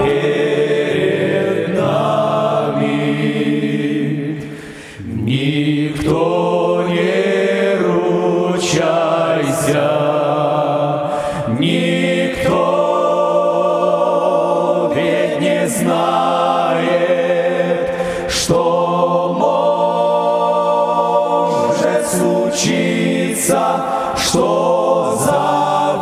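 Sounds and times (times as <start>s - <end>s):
male choir singing in harmony: 0.0s - 26.0s.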